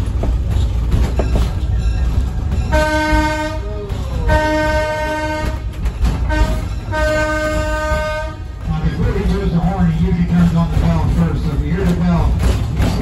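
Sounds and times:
low rumble of moving train: 0.0 - 13.0
locomotive horn blasts: 2.7 - 3.7, 4.3 - 8.7.

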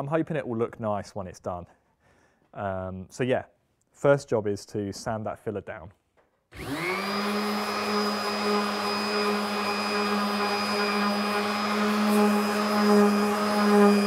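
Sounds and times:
orbital sander on wood: 6.6 - 14.0.

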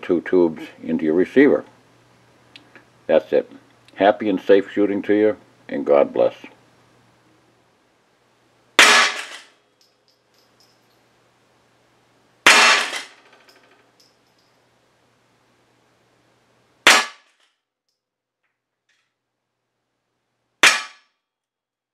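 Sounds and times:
rifle shots: 8.8 - 9.5, 12.4 - 13.2, 16.8 - 17.3, 20.6 - 21.0.

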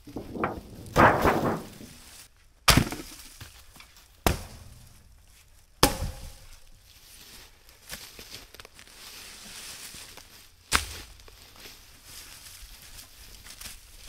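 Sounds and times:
clattering crash: 0.0 - 2.1.

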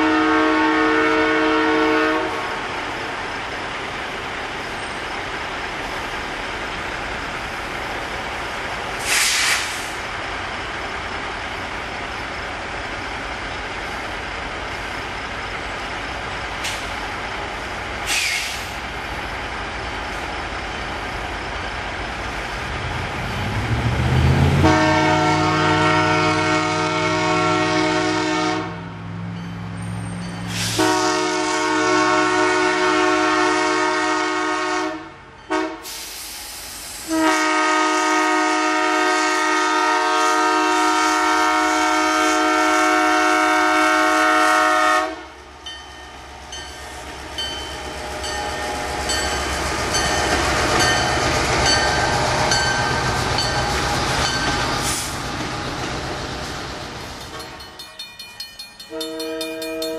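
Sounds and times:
locomotive air horn blasts: 0.0 - 2.6, 24.6 - 28.9, 30.5 - 36.2, 37.0 - 45.4, 58.9 - 59.9
road traffic: 0.0 - 59.9
trucks passing: 1.2 - 35.8, 37.4 - 59.9.

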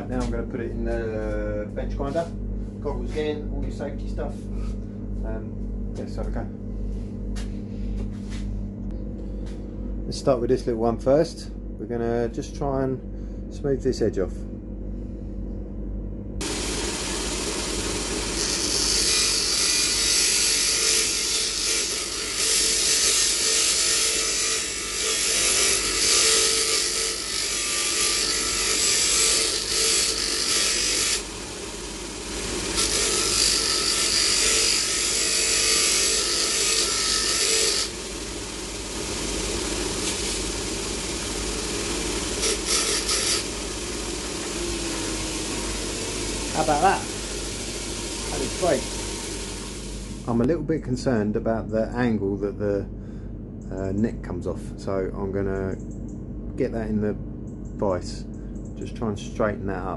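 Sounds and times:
bench grinder running: 16.4 - 50.4
metal spoon grinding on wheel: 18.4 - 31.2, 32.8 - 38.0, 42.3 - 43.6.

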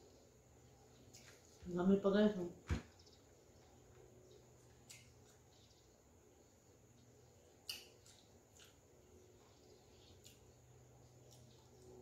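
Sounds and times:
chewing mouth clicks: 4.7 - 5.4, 7.6 - 8.8, 10.0 - 10.6.

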